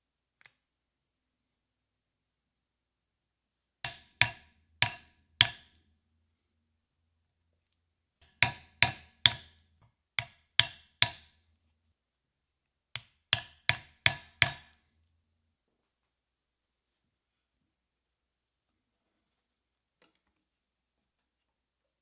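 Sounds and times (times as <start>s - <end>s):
mallet striking leather chisel: 3.9s - 5.8s, 8.2s - 9.6s, 10.2s - 11.4s, 13.0s - 14.8s.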